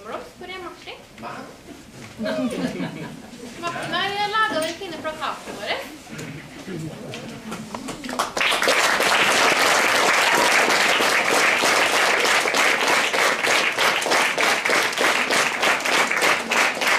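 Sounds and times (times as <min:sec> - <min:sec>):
crowd applause: 0:08.0 - 0:16.9.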